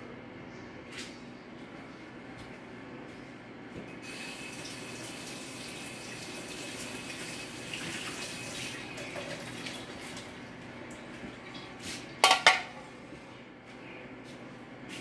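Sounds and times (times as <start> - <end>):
faucet running into sink: 4.0 - 10.3.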